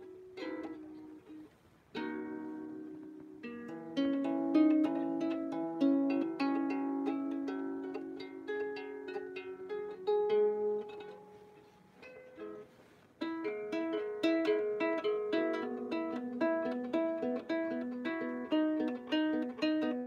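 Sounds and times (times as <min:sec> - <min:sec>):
out-of-tune harp plucked: 0:00.0 - 0:20.0.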